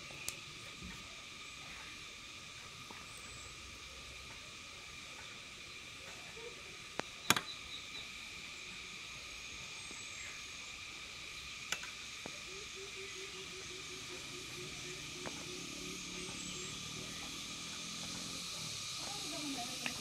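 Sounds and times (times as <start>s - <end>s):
insects chirping: 0.0s - 20.0s
low rapid pulsing call: 12.0s - 20.0s.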